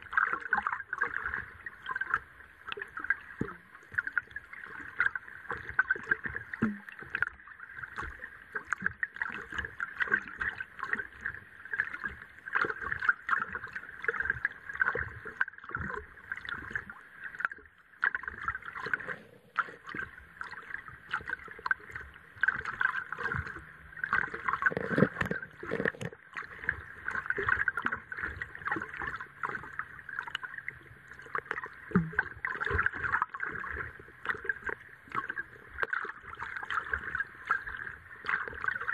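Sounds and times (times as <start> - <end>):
underwater clicks and knocks: 0.1 - 38.9
underwater thumps: 22.4 - 27.9, 31.5 - 33.5.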